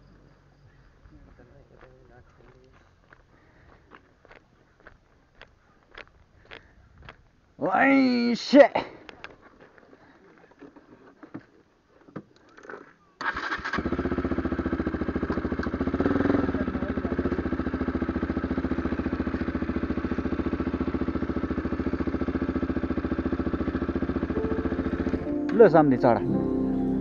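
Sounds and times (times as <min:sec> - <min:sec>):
motorcycle engine starting and idling: 0:12.4 - 0:26.2.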